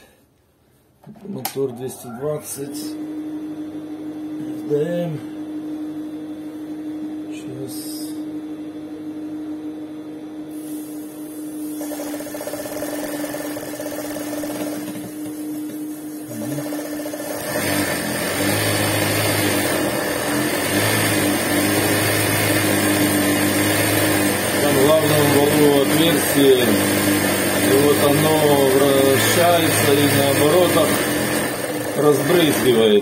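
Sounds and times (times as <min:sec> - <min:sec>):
sewing machine running: 0:11.7 - 0:33.0.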